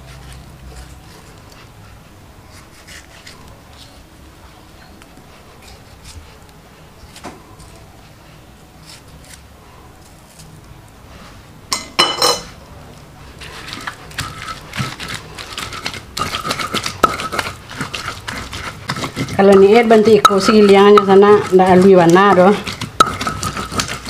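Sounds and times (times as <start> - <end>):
metal utensil clanking on pan: 11.8 - 12.5
spatula scraping in pan: 13.2 - 24.0.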